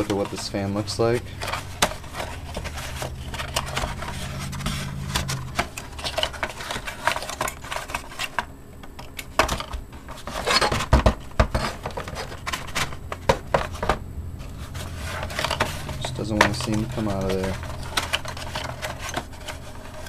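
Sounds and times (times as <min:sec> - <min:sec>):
cardboard box scraping and rubbing: 0:00.0 - 0:08.4, 0:10.2 - 0:10.9, 0:11.5 - 0:20.0
faint low hum: 0:00.0 - 0:20.0
taps and knocks on plastic: 0:10.8 - 0:11.6.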